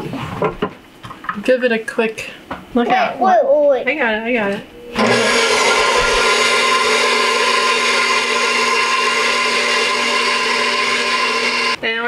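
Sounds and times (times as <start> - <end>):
stand mixer motor whine: 4.9 - 11.8.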